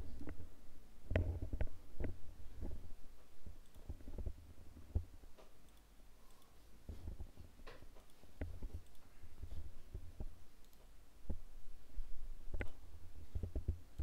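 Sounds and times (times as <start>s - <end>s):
computer mouse clicks: 1.1s - 2.2s, 3.6s - 11.4s, 12.5s - 14.0s.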